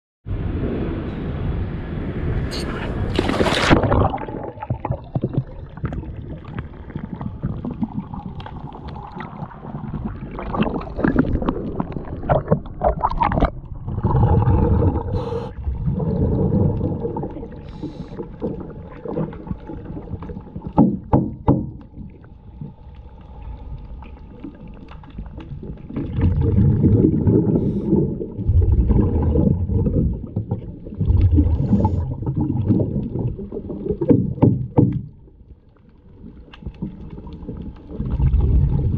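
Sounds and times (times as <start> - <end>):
exhaled bubbles rumbling underwater: 0.3 - 38.9
muffled underwater hum: 11.0 - 21.1
clicks and knocks against hull: 20.7 - 22.0, 34.0 - 35.3.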